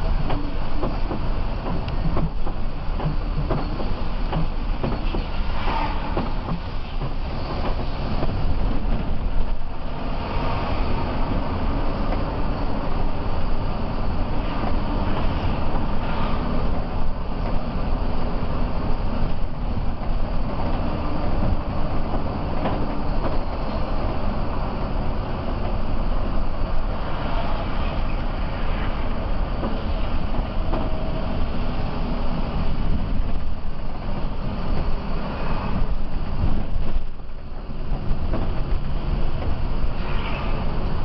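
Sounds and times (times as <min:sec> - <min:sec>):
tyres hissing on wet road: 0:39.8 - 0:41.0.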